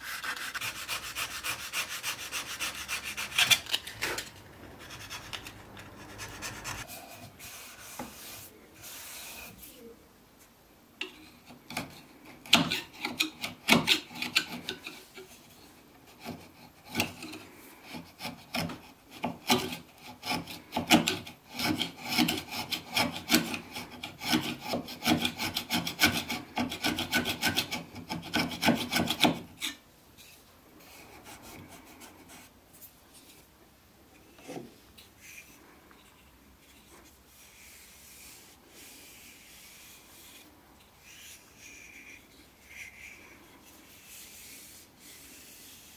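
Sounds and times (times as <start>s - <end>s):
file rasping on wood: 0.0s - 3.8s, 16.1s - 29.8s
faint handling sounds: 29.6s - 45.9s.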